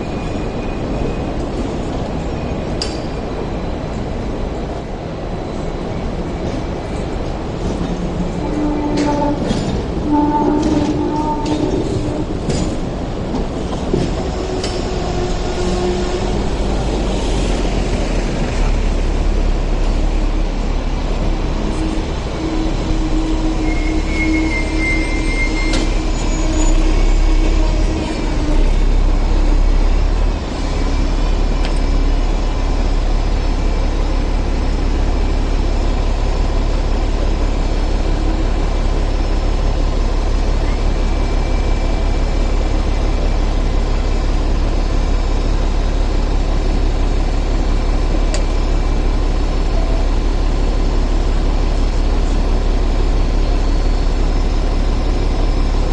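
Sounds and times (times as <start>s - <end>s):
tram wheels rumbling on tracks: 0.0s - 55.9s
wheels squealing: 21.6s - 28.4s.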